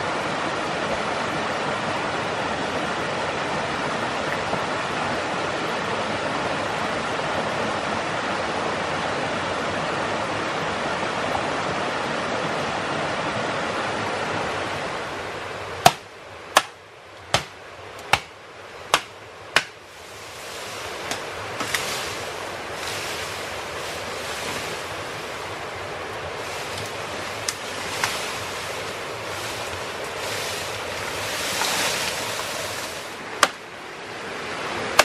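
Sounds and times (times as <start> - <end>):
sharp knocks: 16.6 - 18.3, 18.9 - 19.8
running water: 17.4 - 35.0.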